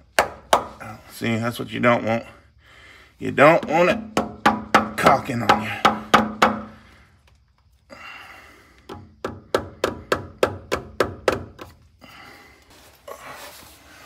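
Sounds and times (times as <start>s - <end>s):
rubber mallet tapping metal: 3.6s - 6.7s
rustle: 12.4s - 14.0s.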